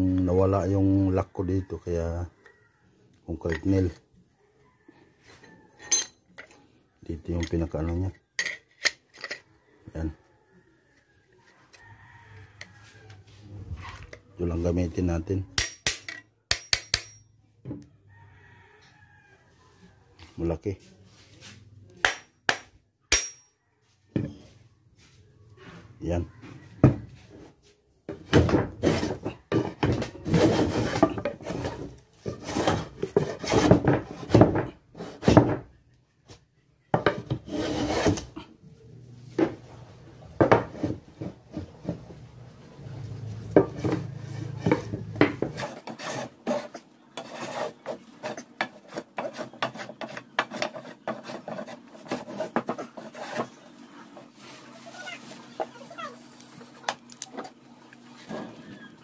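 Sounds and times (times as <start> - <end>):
hand plane shaving wood: 28.7 - 29.3, 30.1 - 34.4, 37.3 - 38.4, 44.0 - 54.4.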